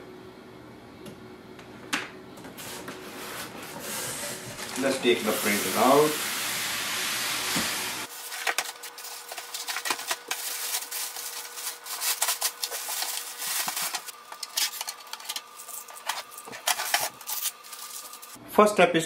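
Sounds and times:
steady hiss: 3.8s - 8.2s
plastic bag crinkling: 4.4s - 6.1s, 8.1s - 18.4s.

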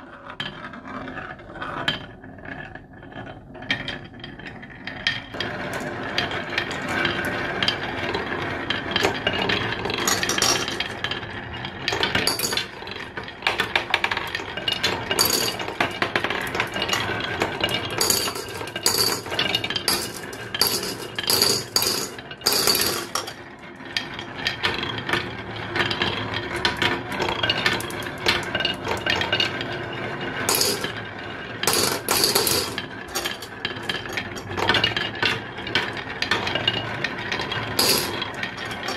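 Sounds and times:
marbles rolling on wooden track: 0.0s - 38.9s
marbles clicking: 13.5s - 23.4s, 27.4s - 29.4s, 30.5s - 31.0s, 37.6s - 38.9s.

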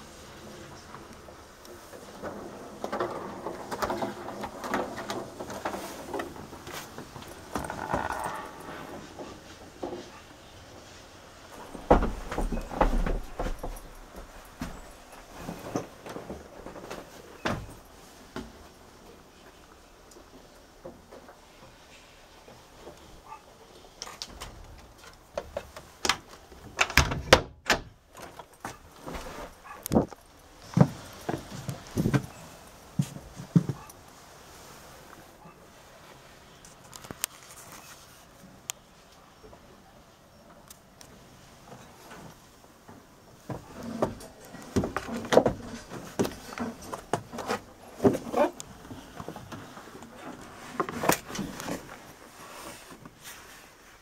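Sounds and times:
rustling: 0.0s - 27.0s, 28.0s - 54.0s
knocks and clunks: 11.6s - 16.8s.

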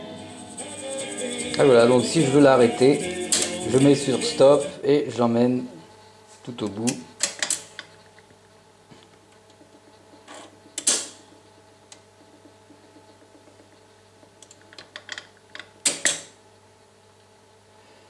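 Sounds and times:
faint steady hum: 0.0s - 18.0s
tonearm mechanism clicks and clunks: 6.8s - 8.3s, 9.3s - 16.4s.

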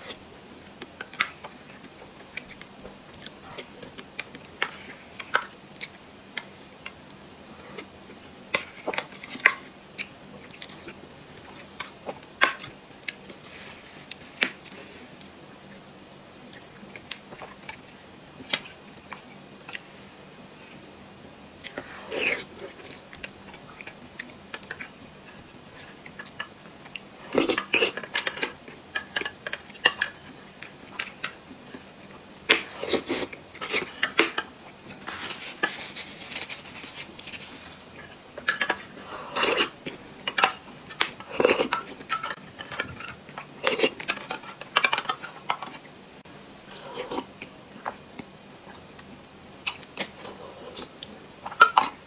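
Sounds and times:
tissue rustling: 35.1s - 37.9s.

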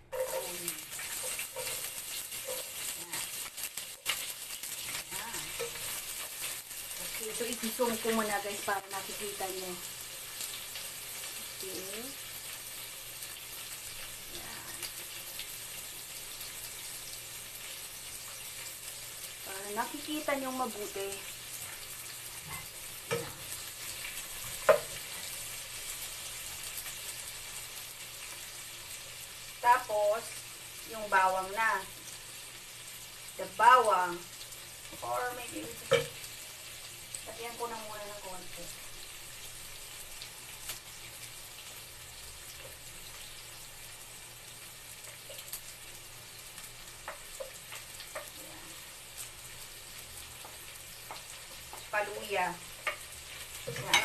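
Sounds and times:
wooden spatula stirring: 0.0s - 3.4s
onions sizzling in hot oil: 0.0s - 54.0s.

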